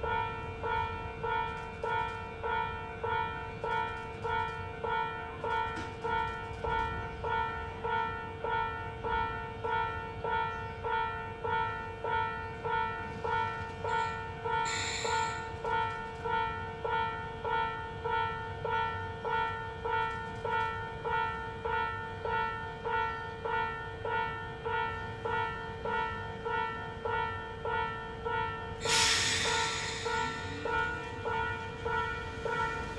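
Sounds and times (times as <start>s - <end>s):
level crossing alarm bell: 0.0s - 32.9s
brief hiss: 28.8s - 30.7s.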